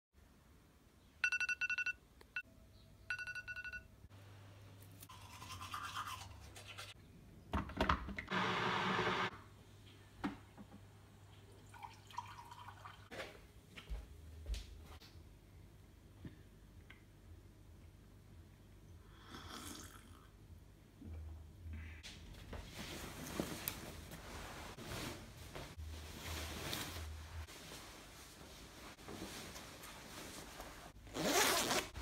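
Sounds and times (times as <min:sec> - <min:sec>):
electric kettle heating: 0:08.3 - 0:09.3.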